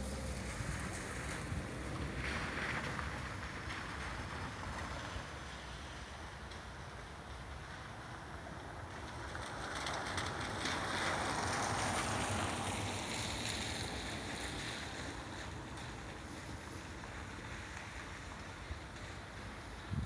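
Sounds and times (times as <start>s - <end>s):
wind buffeting microphone: 19.8s - 20.0s.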